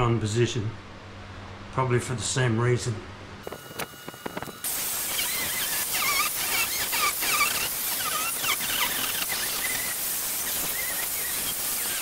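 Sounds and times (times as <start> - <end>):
angle grinder cutting block: 4.2 - 12.0.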